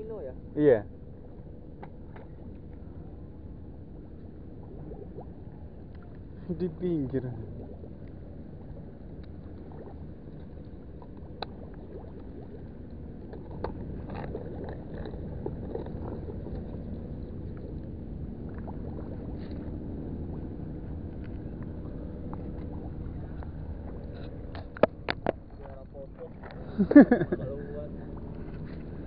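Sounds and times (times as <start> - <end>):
faint hum: 0.0 - 29.0
low rumble: 0.0 - 29.0.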